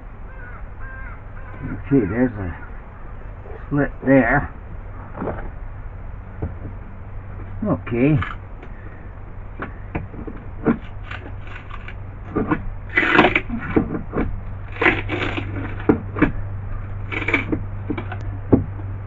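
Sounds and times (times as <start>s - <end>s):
boat floor cracking and crunching: 5.1s - 5.6s, 9.6s - 18.8s.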